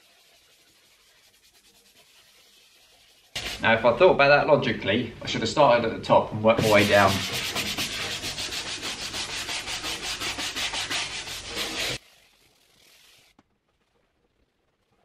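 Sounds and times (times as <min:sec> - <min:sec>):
brush scrubbing leather: 0:00.0 - 0:03.6, 0:06.6 - 0:13.3.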